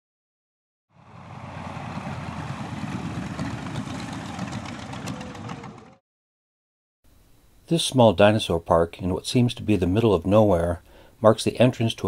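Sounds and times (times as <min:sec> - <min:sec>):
propeller plane engine rumbling: 0:00.9 - 0:06.0.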